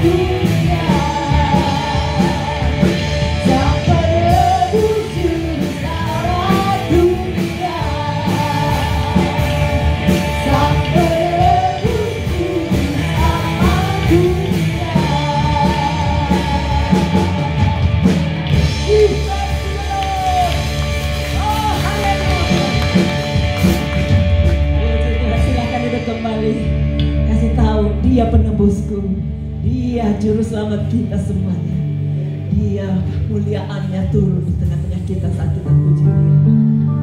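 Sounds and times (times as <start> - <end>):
person singing: 0.0 - 23.0
worship band playing: 0.0 - 37.0.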